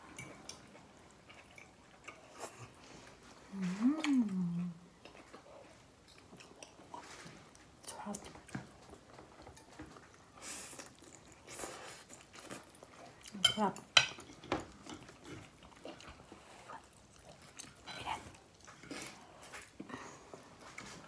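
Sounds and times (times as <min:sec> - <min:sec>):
person chewing: 0:00.1 - 0:07.7, 0:08.3 - 0:13.4, 0:14.2 - 0:21.0
woman's voice: 0:03.5 - 0:04.8, 0:13.3 - 0:13.8.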